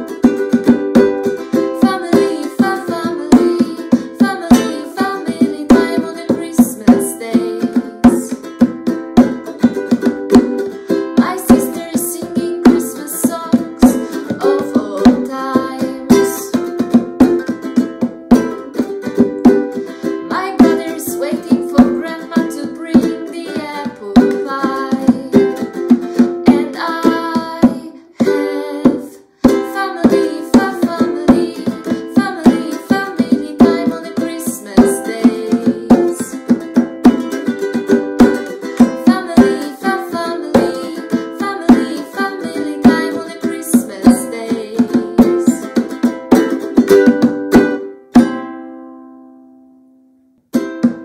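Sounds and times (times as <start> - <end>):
hand drum beating: 0.0 - 48.4
ukulele strumming: 0.0 - 51.0
woman singing: 1.5 - 8.5, 10.9 - 17.0, 19.8 - 36.7, 38.5 - 46.0.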